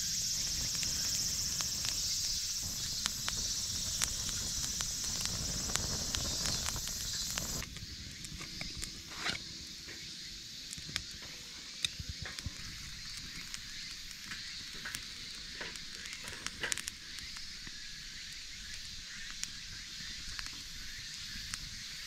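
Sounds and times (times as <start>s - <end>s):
campfire crackling and hissing: 0.0s - 22.0s
fire tongs clicking on firewood: 11.8s - 17.5s.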